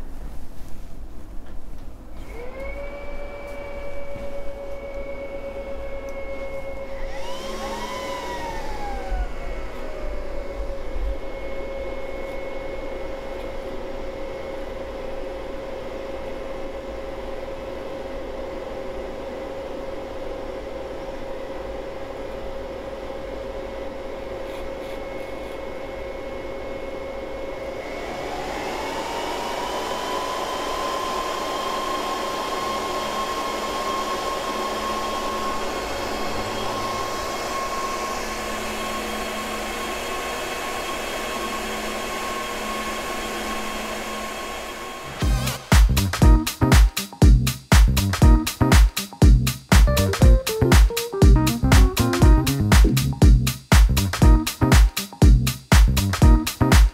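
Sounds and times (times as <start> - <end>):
cooling fans whirring: 0.0 - 56.9.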